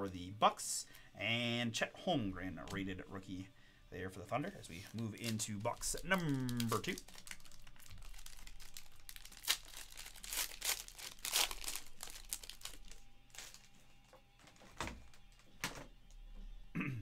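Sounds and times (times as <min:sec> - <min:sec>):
foil wrapper tearing and crinkling: 0:04.7 - 0:13.7.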